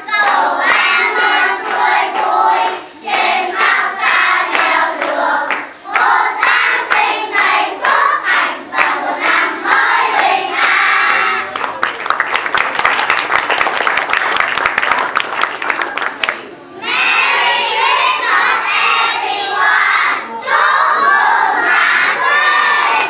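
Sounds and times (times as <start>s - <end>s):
children's choir singing: 0.0s - 11.6s, 16.4s - 23.0s
people clapping: 0.0s - 18.9s, 20.8s - 23.0s.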